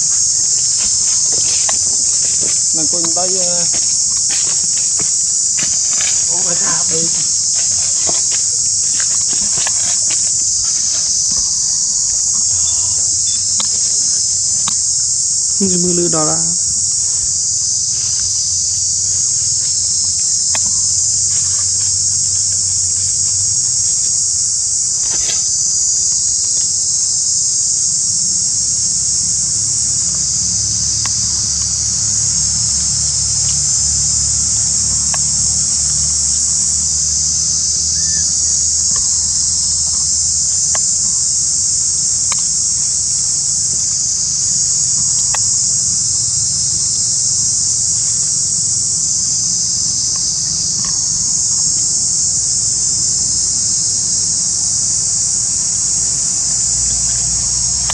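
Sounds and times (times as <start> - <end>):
faint ticks: 0.0 - 11.5, 12.2 - 15.0, 38.8 - 43.2, 44.5 - 46.1, 55.0 - 57.9
insect chorus shrilling: 0.0 - 57.9.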